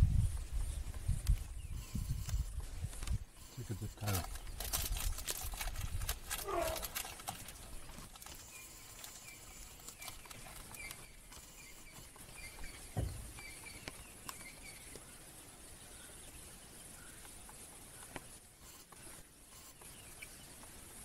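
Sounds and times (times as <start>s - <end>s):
bird chirping: 7.6s - 18.2s
low thump: 12.9s - 13.3s.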